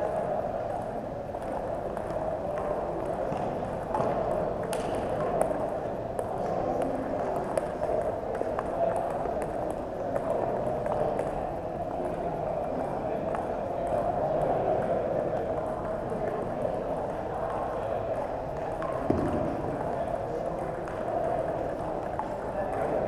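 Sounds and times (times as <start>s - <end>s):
table tennis balls clicking: 0.7s - 12.2s.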